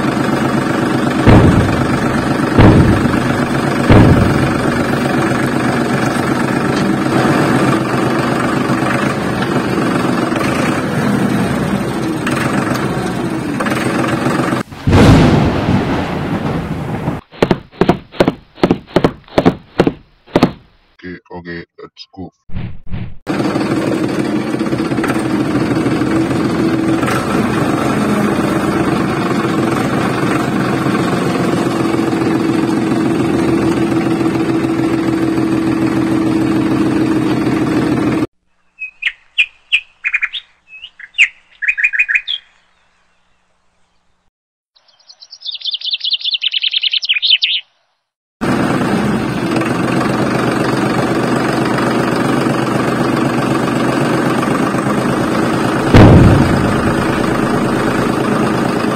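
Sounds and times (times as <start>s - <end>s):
tractor engine humming: 0.0s - 21.6s, 23.3s - 38.3s, 48.4s - 58.9s
short bird chirps: 38.5s - 44.1s, 44.8s - 48.1s
rapid high-pitched bird call: 38.6s - 42.6s, 44.8s - 47.8s.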